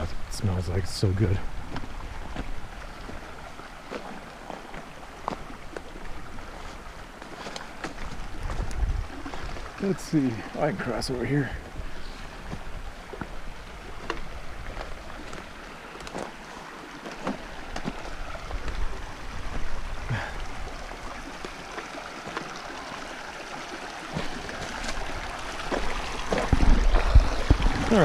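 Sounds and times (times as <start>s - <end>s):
creek running over rocks: 0.0s - 28.0s
footsteps on stony trail: 1.4s - 9.8s, 11.6s - 20.3s, 24.1s - 28.0s.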